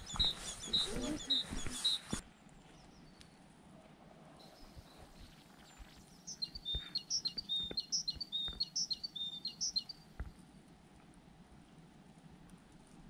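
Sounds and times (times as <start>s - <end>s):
soft footsteps: 0.0s - 2.2s, 4.6s - 9.4s
songbird singing: 0.0s - 3.5s, 4.4s - 10.4s.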